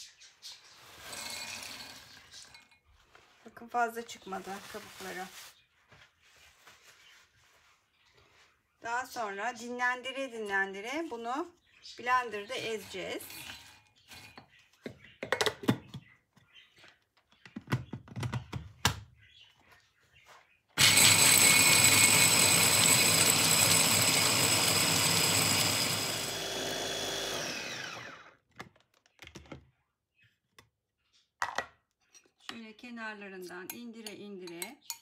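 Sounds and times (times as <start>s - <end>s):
electric chopper grinding nuts: 1.0s - 2.6s, 20.8s - 28.4s.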